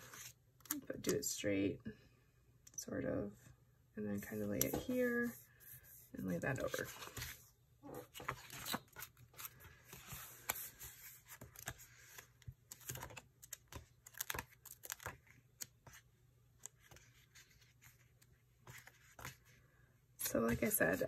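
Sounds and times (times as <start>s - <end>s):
paper rustling and crinkling: 8.0s - 16.0s.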